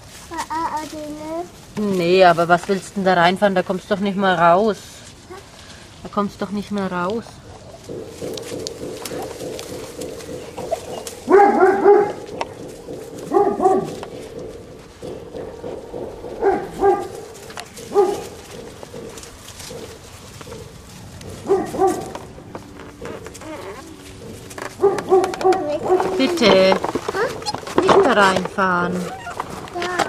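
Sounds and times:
puppy barking: 10.9 - 12.5, 13.2 - 14.0, 16.4 - 18.7, 21.4 - 22.2, 24.8 - 26.2.

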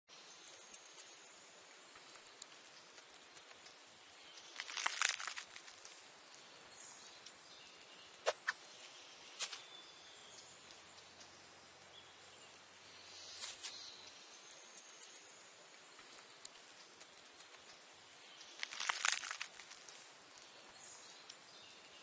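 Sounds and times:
mouse nibbling and scrabbling: 0.1 - 6.4, 13.3 - 20.4
faint outdoor ambience: 0.1 - 22.0.

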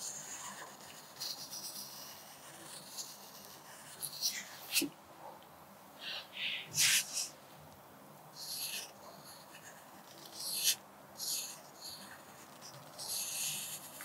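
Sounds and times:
pencil scratching on paper: 0.0 - 4.9, 8.4 - 14.0.

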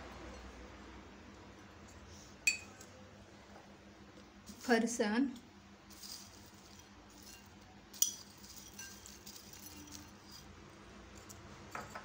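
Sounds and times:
glass bowls clinking: 2.4 - 2.9, 5.9 - 10.4.

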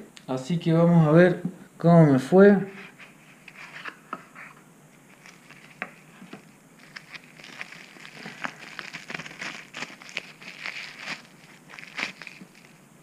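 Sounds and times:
bubble wrap crinkling and crackling: 5.0 - 13.0.

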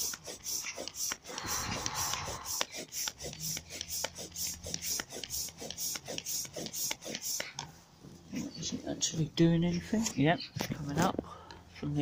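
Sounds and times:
air pump rhythmic rasp: 0.0 - 7.8.

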